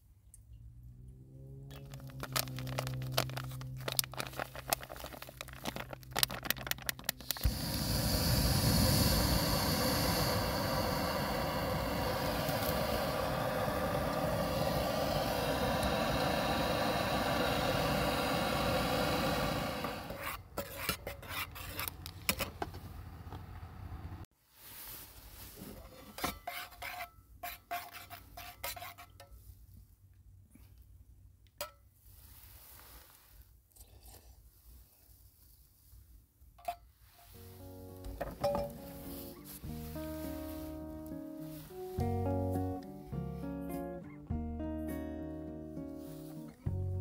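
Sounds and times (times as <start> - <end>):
steady rushing hiss: 4.1 - 20.2, 38.9 - 42.3.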